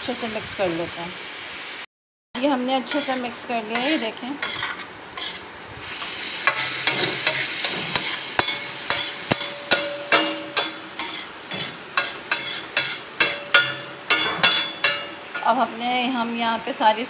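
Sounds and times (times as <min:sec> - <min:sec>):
minced meat sizzling: 0:02.4 - 0:17.0
spatula scraping a pan: 0:02.8 - 0:15.6.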